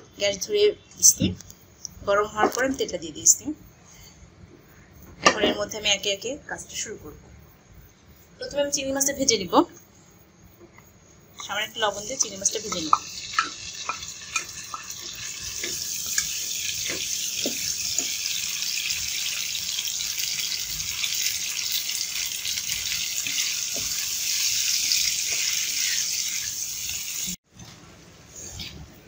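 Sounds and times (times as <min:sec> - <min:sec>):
shrimp sizzling in hot oil: 0:11.7 - 0:27.4.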